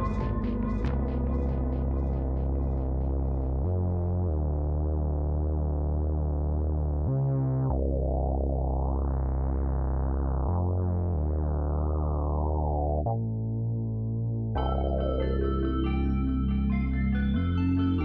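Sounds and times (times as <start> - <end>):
synthesizer keyboard chords: 0.0 - 10.4, 14.6 - 18.0
held bass notes: 0.0 - 18.0.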